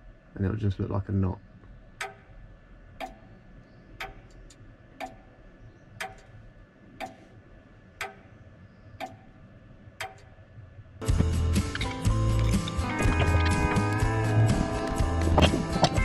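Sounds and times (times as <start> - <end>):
clock ticking: 2.0 - 2.4, 3.0 - 3.4, 4.0 - 5.4, 6.0 - 7.4, 8.0 - 8.4, 9.0 - 9.4, 10.0 - 10.4
faint clicks: 3.0 - 6.4, 7.0 - 7.4, 8.0 - 9.4.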